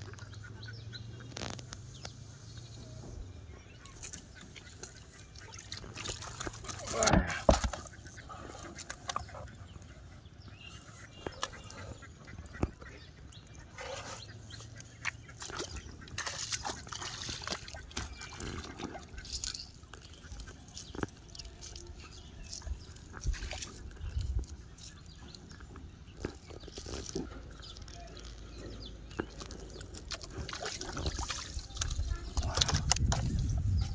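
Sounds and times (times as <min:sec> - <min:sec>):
fish flapping in water: 0:04.0 - 0:08.2, 0:14.9 - 0:22.0, 0:29.2 - 0:33.7
fish splashing: 0:04.0 - 0:09.4, 0:13.8 - 0:21.9, 0:29.2 - 0:33.2.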